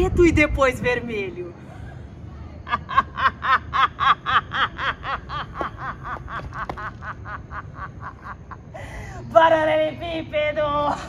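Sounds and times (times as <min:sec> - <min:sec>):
woman laughing: 0:02.6 - 0:09.1.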